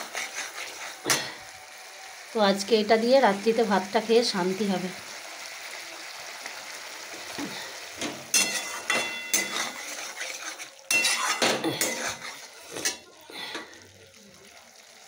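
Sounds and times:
metal spatula scraping a pan: 0.0 - 1.4, 7.5 - 13.7.

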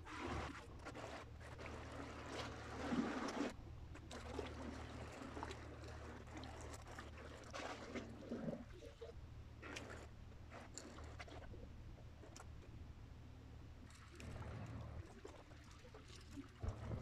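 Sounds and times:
sea water lapping against breakwater: 0.0 - 12.6, 13.8 - 17.0.

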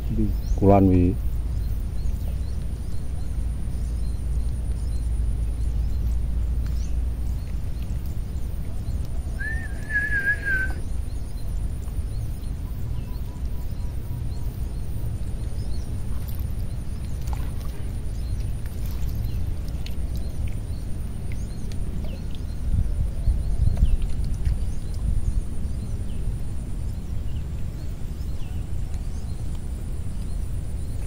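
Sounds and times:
faint bird chirps: 0.0 - 19.5
low waterside rumble: 0.0 - 31.0
warbling bird call: 9.2 - 10.8.

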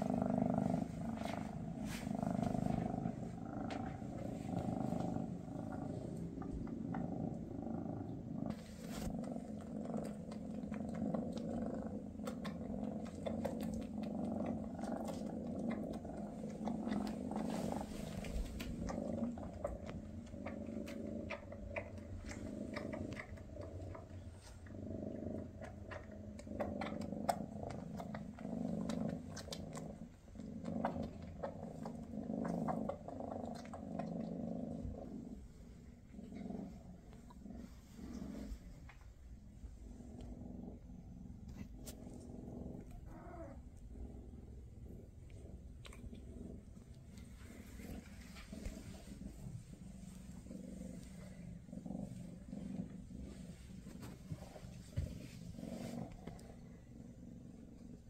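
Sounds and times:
fur and paw rustles: 0.0 - 6.0, 8.5 - 9.2, 17.0 - 18.8
cats purring: 0.0 - 58.0.

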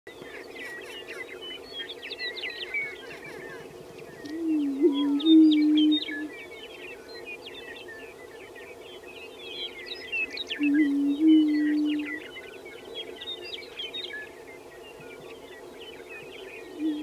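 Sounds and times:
high chirps and calls: 2.3 - 6.3.

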